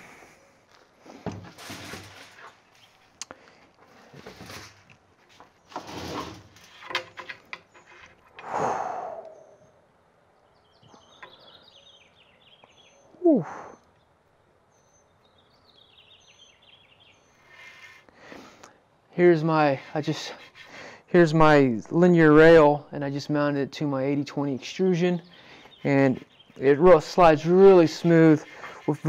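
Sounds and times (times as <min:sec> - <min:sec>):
metal frame clicks and knocks: 0:06.6 - 0:08.2
birds chirping faintly: 0:07.1 - 0:29.0
short vocal exclamation: 0:13.2 - 0:13.8.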